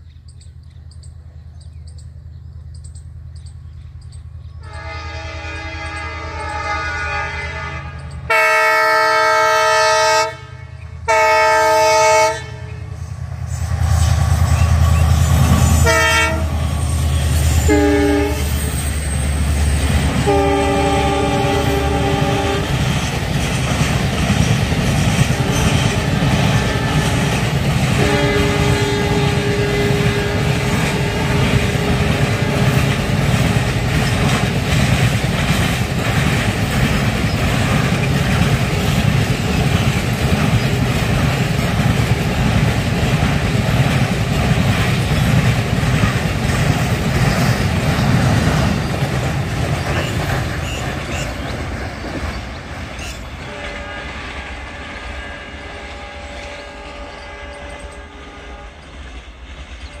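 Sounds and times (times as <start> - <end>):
train horn: 4.6 - 23.0, 25.2 - 33.7, 53.4 - 59.2
train wheels clattering over rails: 13.6 - 55.0, 58.8 - 60.0.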